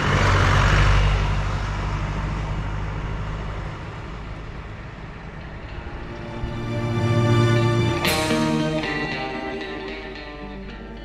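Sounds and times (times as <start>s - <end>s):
vehicle engine hum: 0.0s - 11.0s.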